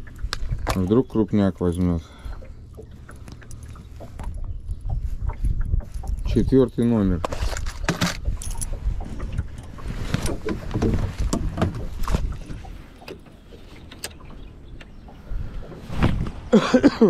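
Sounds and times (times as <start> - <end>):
fishing tackle clicks and knocks: 0.0 - 1.0, 7.0 - 14.9.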